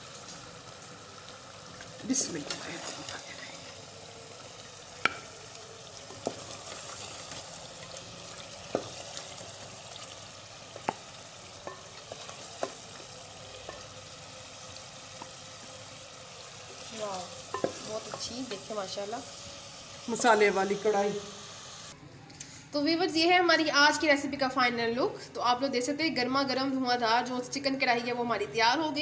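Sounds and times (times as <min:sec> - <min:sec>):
food sizzling and bubbling in pot: 0:00.0 - 0:22.0
spoon knocking on pot: 0:05.0 - 0:05.3, 0:17.5 - 0:18.3.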